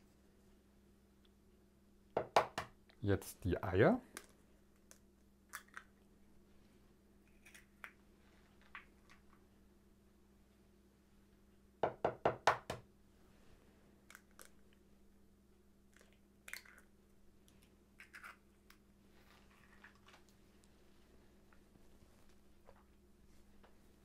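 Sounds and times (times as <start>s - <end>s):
eggshell cracking apart: 4.2s - 6.0s, 7.3s - 8.0s, 15.9s - 16.9s.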